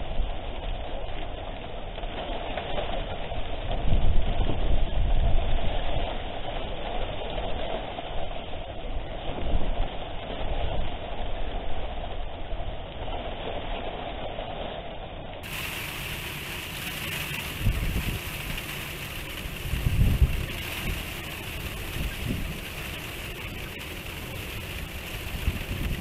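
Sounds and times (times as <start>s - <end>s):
rain hiss: 0.0s - 26.0s
wind buffeting microphone: 3.0s - 14.4s, 15.4s - 26.0s
gusts thumping on microphone: 15.4s - 26.0s.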